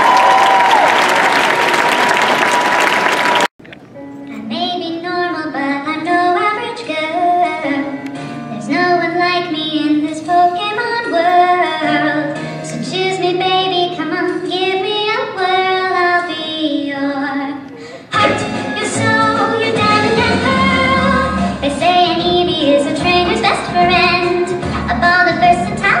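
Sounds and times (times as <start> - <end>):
musical accompaniment: 3.9 - 14.7, 18.1 - 26.0.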